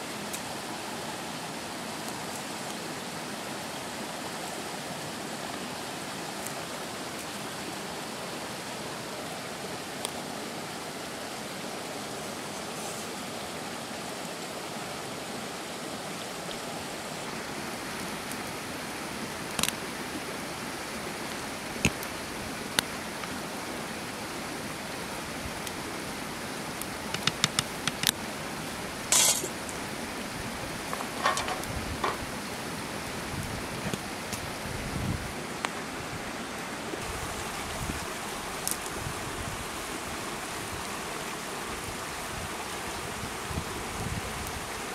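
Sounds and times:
rice boiling in pot: 26.8 - 28.2.

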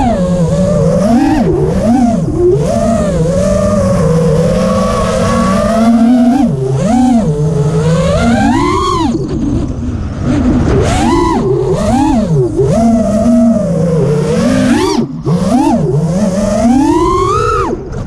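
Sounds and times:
drone motors whining: 0.0 - 18.0
rush of air: 8.8 - 12.7.

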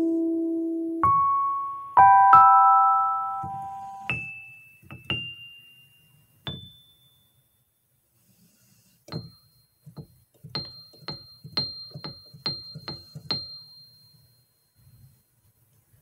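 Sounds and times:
high-pitched ringing taps: 1.7 - 7.7, 9.1 - 15.2.

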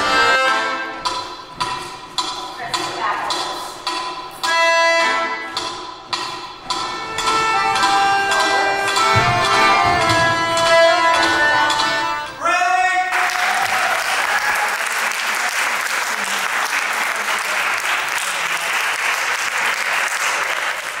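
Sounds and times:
accordion music: 0.0 - 12.8
audience clapping: 13.1 - 21.0.

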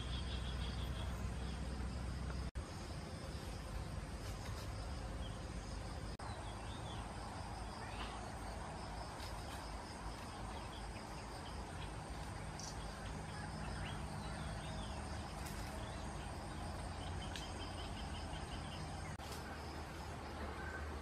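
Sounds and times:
faint bird chirps: 0.0 - 1.8
high insect drone: 0.0 - 21.0.

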